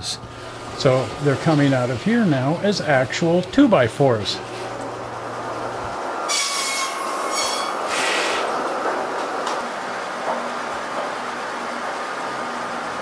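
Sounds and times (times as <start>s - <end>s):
mill machinery rumbling: 0.0s - 6.3s, 7.1s - 13.0s
saw screeching: 6.3s - 8.5s.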